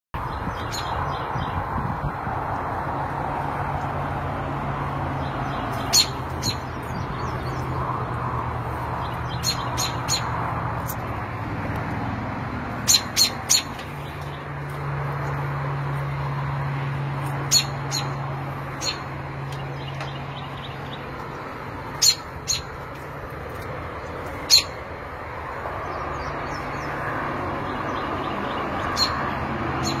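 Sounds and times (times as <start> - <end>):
robin alarm calls: 0.3 - 1.6, 5.4 - 7.7, 9.0 - 10.3, 12.8 - 14.4, 17.4 - 19.1, 21.9 - 22.8, 24.4 - 24.8, 27.9 - 30.0.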